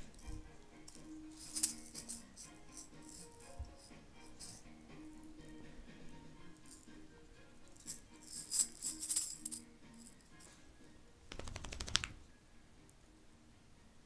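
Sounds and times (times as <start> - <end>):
high rattling jingle: 0.0 - 5.2, 6.5 - 10.5
faint music: 0.0 - 14.0.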